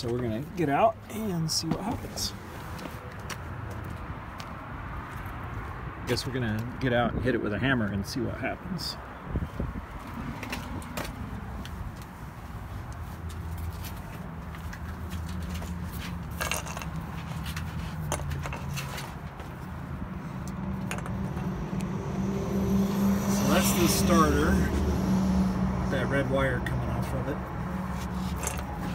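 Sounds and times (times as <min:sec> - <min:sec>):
footsteps on asphalt: 0:00.0 - 0:05.8, 0:09.5 - 0:22.2
low hum: 0:20.2 - 0:28.8.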